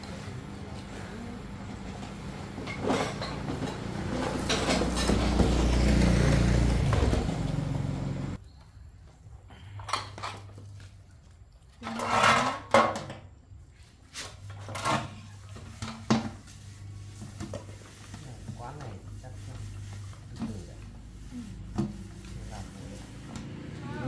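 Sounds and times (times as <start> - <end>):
kitchen knocks and clatters: 2.1 - 5.8.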